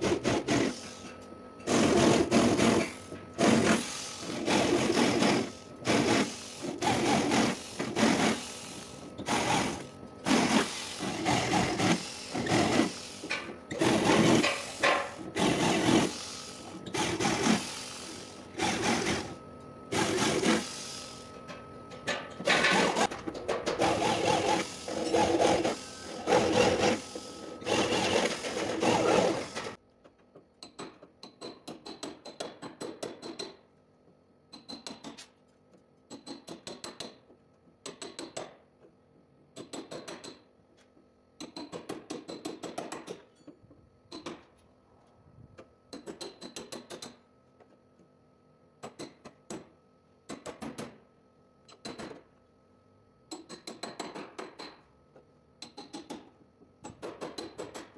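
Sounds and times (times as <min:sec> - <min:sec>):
power drill on sheet metal: 0:00.0 - 0:01.0, 0:01.6 - 0:21.3, 0:22.4 - 0:29.8.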